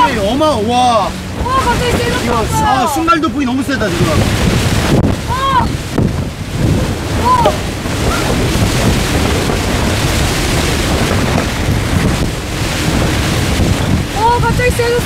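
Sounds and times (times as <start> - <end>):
rain lashing tent fabric: 0.0 - 15.0
wind gusting against tent: 0.0 - 15.0.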